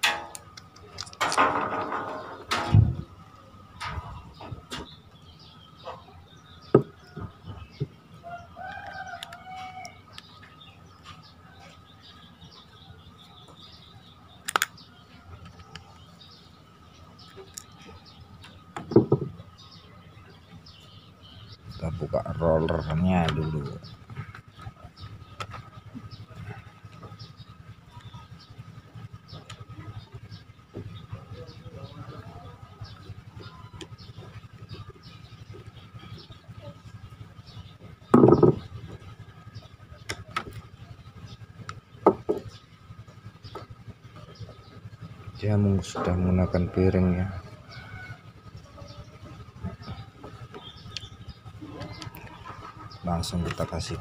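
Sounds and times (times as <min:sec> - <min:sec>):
clatter of metal parts: 0:00.0 - 0:03.1
dull knock: 0:18.8 - 0:19.4, 0:38.2 - 0:38.7.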